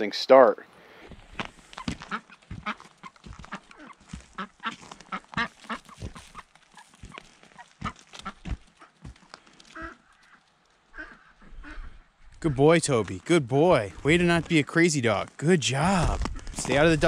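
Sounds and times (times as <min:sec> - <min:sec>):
footsteps crunching on snow: 0:00.9 - 0:17.0
ducks quacking: 0:01.6 - 0:12.3.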